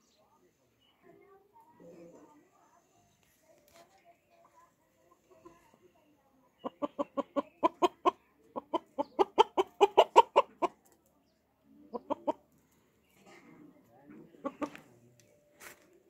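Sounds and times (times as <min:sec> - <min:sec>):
chicken clucking: 0:04.0 - 0:15.9.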